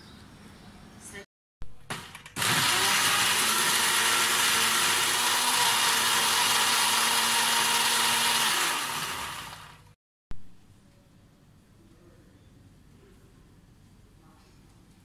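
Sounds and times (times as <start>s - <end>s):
electric blender running: 1.9s - 10.0s.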